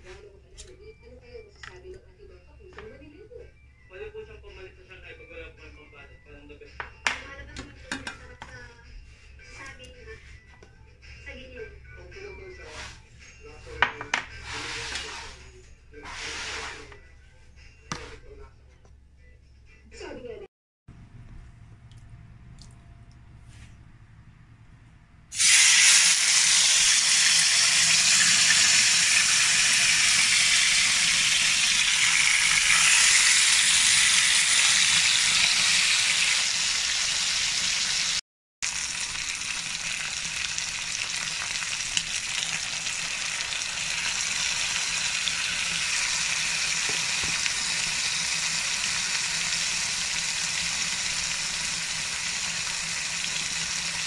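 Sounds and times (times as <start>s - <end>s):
meat sizzling in a frying pan: 25.4s - 54.0s.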